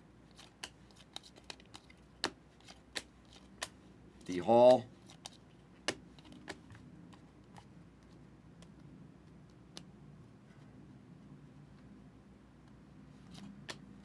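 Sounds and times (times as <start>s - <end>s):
low room hum: 0.0s - 14.0s
trading cards clicking: 0.3s - 3.8s.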